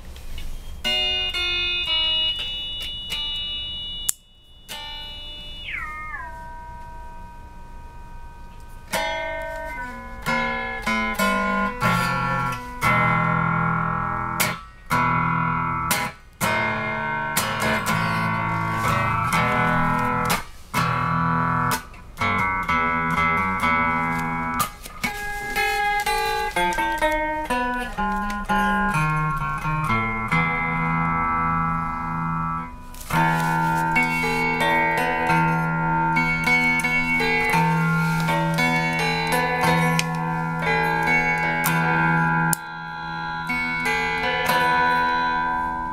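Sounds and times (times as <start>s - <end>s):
electric guitar with sliding pitch: 4.7s - 45.9s.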